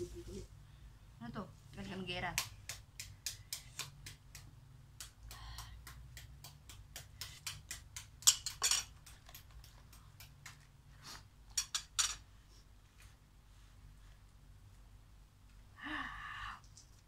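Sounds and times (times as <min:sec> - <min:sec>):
cutlery clatter: 0:08.2 - 0:08.9, 0:11.5 - 0:12.2
cutlery tapping in a metal pot: 0:08.2 - 0:09.0, 0:11.5 - 0:12.2.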